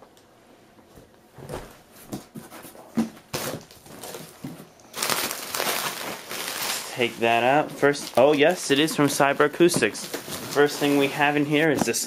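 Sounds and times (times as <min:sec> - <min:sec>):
bubble wrap crinkling: 0:03.3 - 0:12.0.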